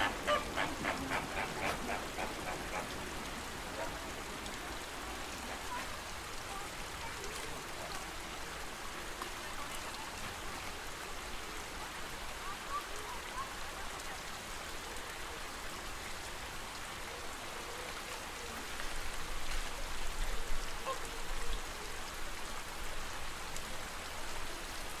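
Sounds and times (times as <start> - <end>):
flamingo calls: 0.0 - 4.0.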